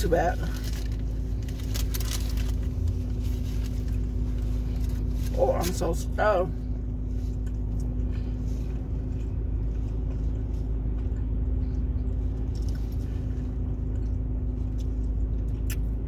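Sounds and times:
car cabin hum and rumble: 0.0s - 16.0s
faint chewing: 7.0s - 15.9s.

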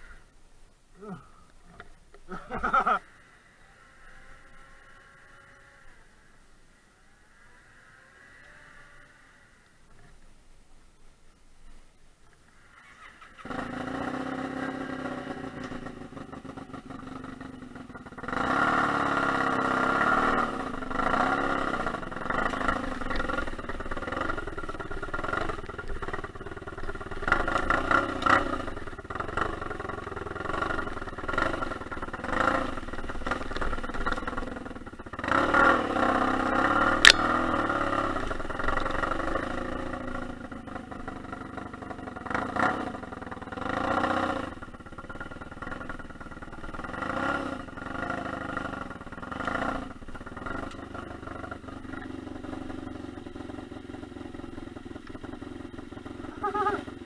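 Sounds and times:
motorcycle engine starting and revving: 1.8s - 6.4s, 12.5s - 57.0s
sharp click: 37.0s - 37.5s.

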